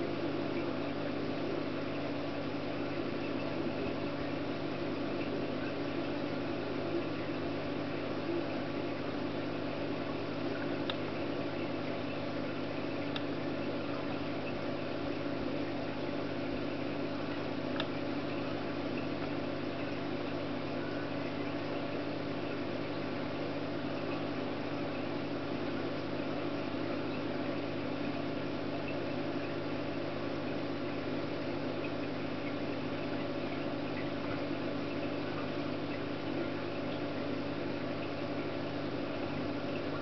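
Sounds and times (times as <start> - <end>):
low mechanical hum: 0.0 - 40.0.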